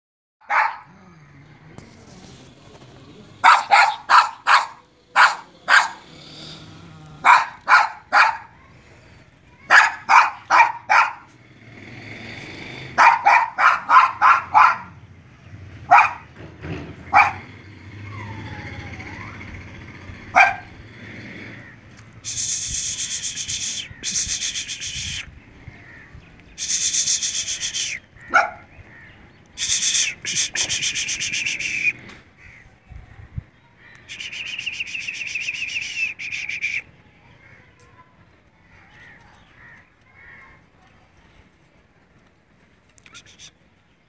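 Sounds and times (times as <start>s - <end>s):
dog barking: 0.4s - 0.9s, 3.4s - 6.0s, 7.2s - 8.6s, 9.6s - 11.3s, 13.0s - 15.0s, 15.9s - 16.3s, 17.1s - 17.5s, 20.3s - 20.8s, 28.3s - 28.7s
rough rubbing noise: 1.7s - 8.1s.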